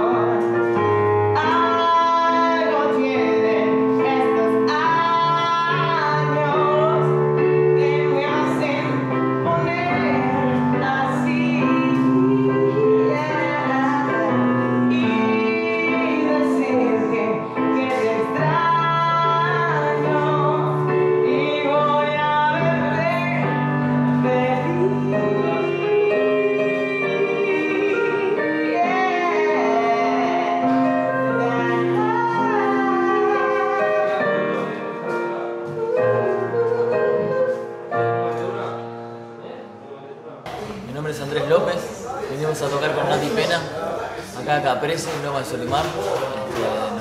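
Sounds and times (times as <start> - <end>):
woman singing with vibrato: 0.0 - 34.8, 35.6 - 38.1
digital piano chords: 0.0 - 47.0.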